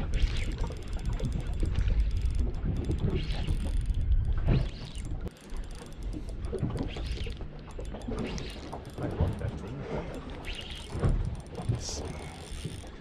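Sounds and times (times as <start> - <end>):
wind rumbling on microphone: 0.0 - 5.3
fishing reel clicking: 0.0 - 13.0
water noise: 0.0 - 13.0.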